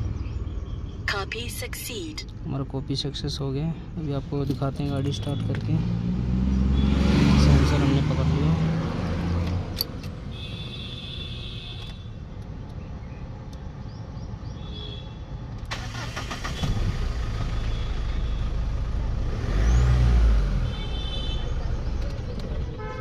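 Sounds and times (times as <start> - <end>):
car engine starting and running: 0.0 - 10.8, 15.4 - 22.9.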